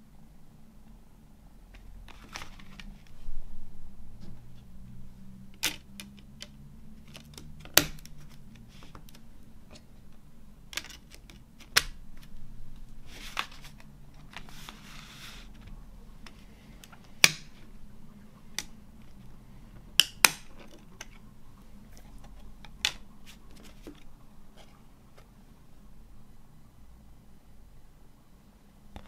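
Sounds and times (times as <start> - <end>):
cardboard rustling: 1.8 - 3.4, 10.7 - 17.8, 20.4 - 25.4
plastic clicks: 10.7 - 14.8.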